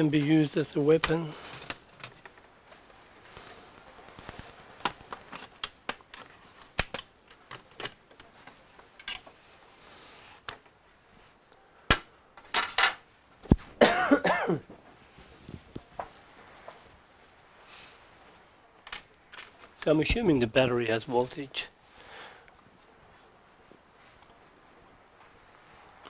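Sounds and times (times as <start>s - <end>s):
run of snaps: 0.0s - 8.4s.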